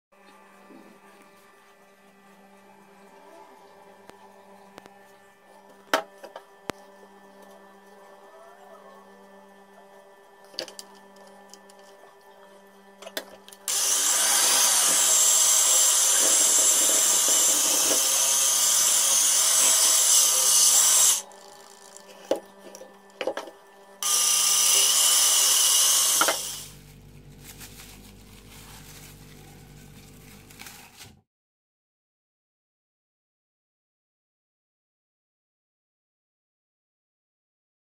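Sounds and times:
electric hand mixer running: 13.7 - 23.4, 24.0 - 26.8.

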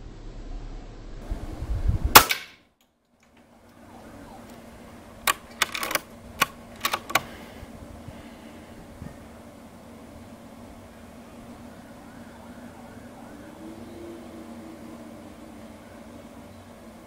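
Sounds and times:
air rifle shot crack: 2.1 - 2.6
metallic clicks of rifle action: 5.2 - 7.3.

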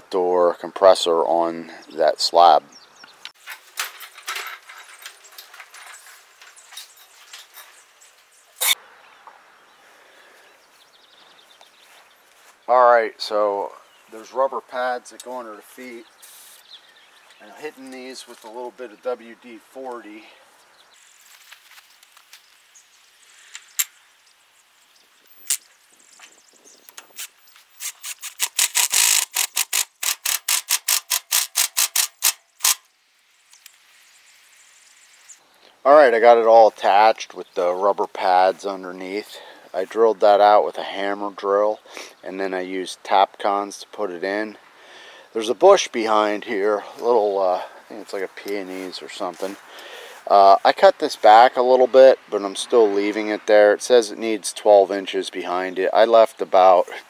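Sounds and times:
faint steady hiss: 0.0 - 28.2, 32.1 - 57.0
cart clicks and rattles: 3.4 - 7.7
dolly wheels rolling on concrete: 3.4 - 7.9
cordless drill clicking: 26.9 - 32.8.

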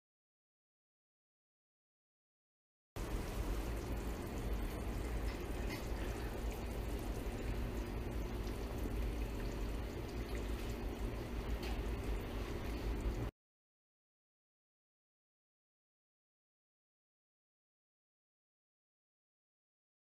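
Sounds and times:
broth bubbling in pot: 3.0 - 13.3
steady low hum: 3.0 - 13.3.

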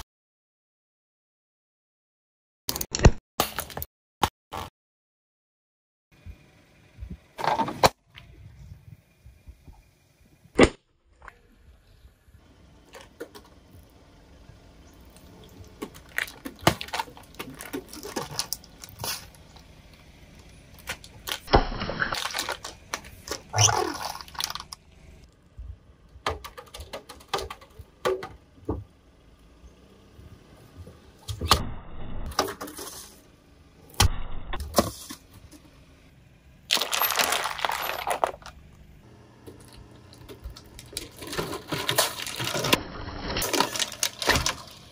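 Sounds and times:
objects crunching under tyre: 15.0 - 25.3, 36.7 - 38.8, 39.5 - 44.9.

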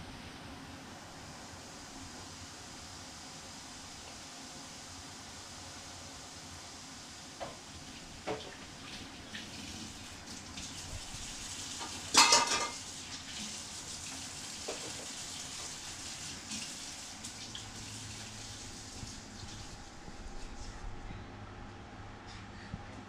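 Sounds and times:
dishes clinking and clattering: 11.8 - 12.8.

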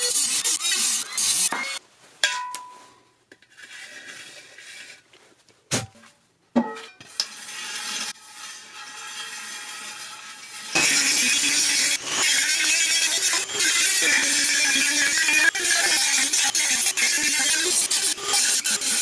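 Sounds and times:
rotary tool grinding metal: 0.0 - 1.8, 7.0 - 19.0.

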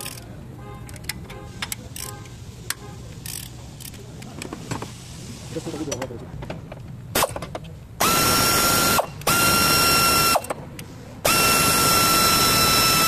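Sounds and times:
power ratchet whining: 8.0 - 10.6, 11.2 - 13.0.

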